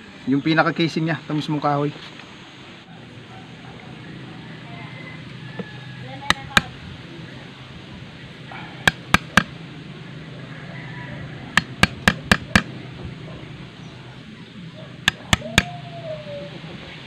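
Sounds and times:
chisel tapping wood: 8.9s - 9.5s, 11.6s - 12.7s, 15.1s - 15.7s.

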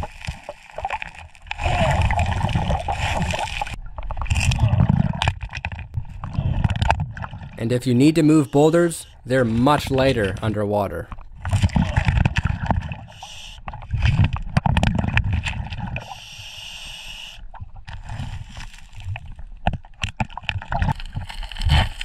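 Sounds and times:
bubbles gurgling underwater: 0.0s - 7.6s.

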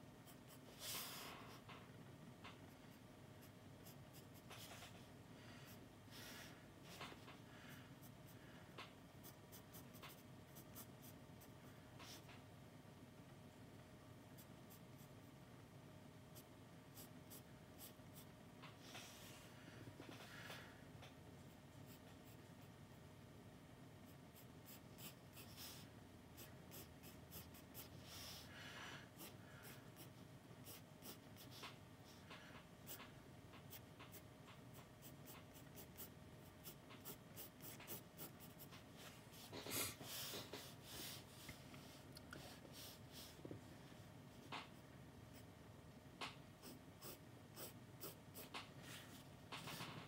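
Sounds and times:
pencil scratching on paper: 26.4s - 28.2s, 29.2s - 31.8s, 32.9s - 38.8s, 46.6s - 48.6s.

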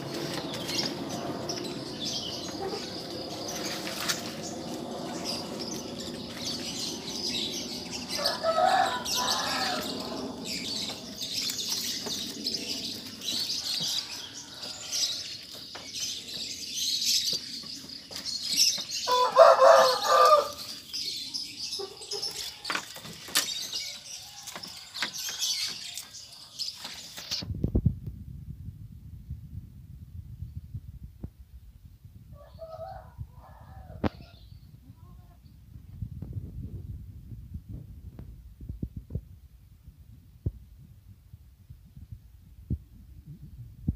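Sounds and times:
birds chirping: 0.0s - 27.4s.

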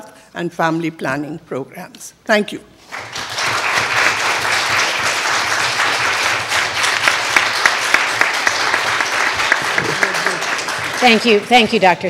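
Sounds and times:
audience applauding: 2.9s - 11.6s.

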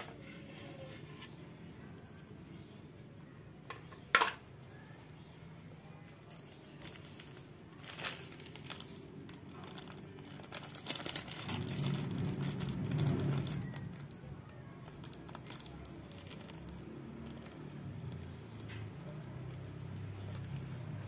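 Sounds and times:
plastic sheet crinkling: 6.1s - 21.0s
low rumble: 10.5s - 14.1s.

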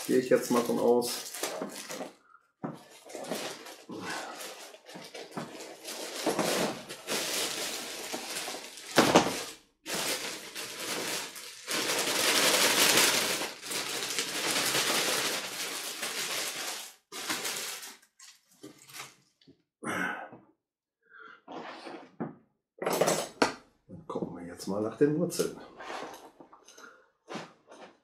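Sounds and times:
plastic bag crinkling: 0.0s - 2.2s, 2.8s - 19.2s.

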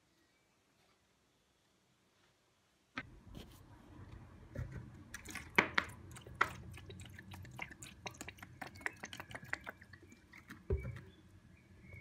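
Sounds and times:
liquid pouring into plastic tub: 5.1s - 11.1s.

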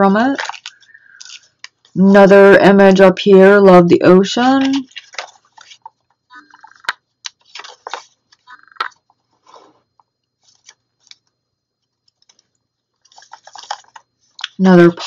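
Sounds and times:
paper pages rustling: 0.3s - 2.0s, 4.4s - 9.7s, 10.4s - 11.3s, 11.9s - 14.6s.

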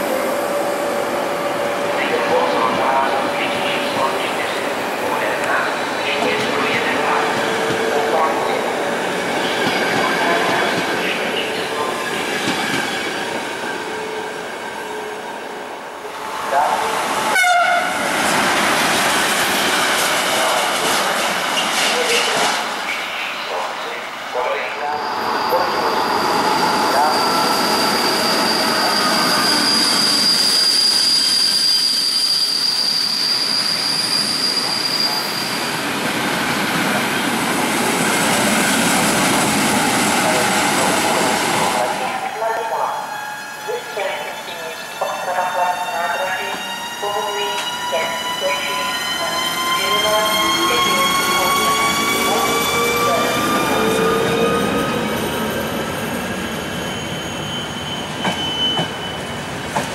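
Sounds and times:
train wheels rumbling and squealing: 0.0s - 59.9s
high-pitched wheel squeal: 25.1s - 35.7s, 56.4s - 59.4s.

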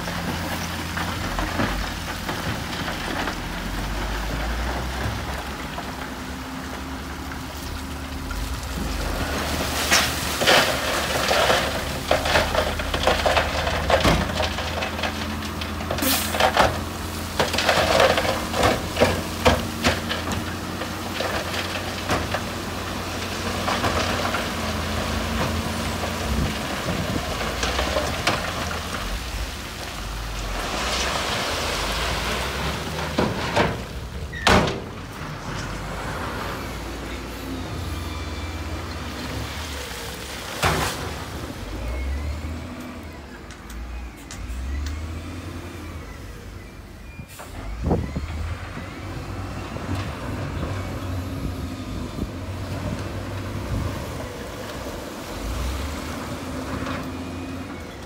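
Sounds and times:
diesel engine running: 0.0s - 58.0s
rocks clattering against steel: 8.3s - 29.7s.

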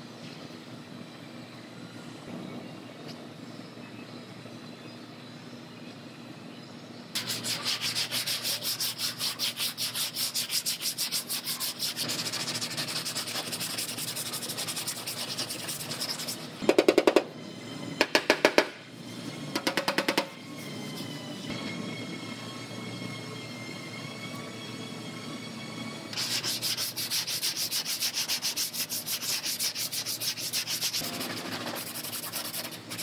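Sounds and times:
hand sanding: 7.2s - 16.6s, 26.2s - 33.0s.

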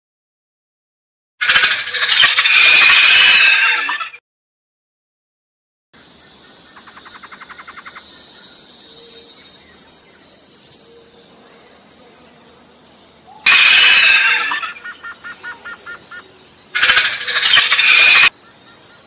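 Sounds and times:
insect chorus hissing: 6.0s - 19.0s.

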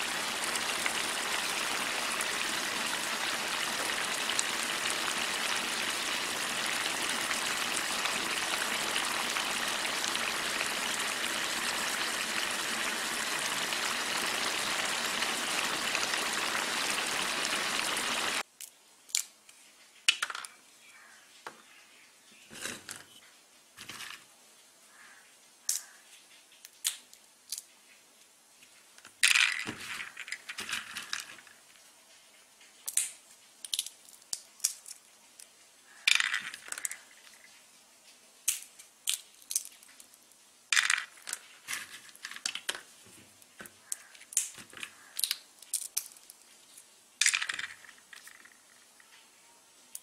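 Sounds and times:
peanut shells cracking: 18.6s - 19.4s, 25.7s - 26.0s, 26.7s - 27.7s, 32.8s - 35.0s, 38.4s - 40.2s, 43.8s - 48.6s.

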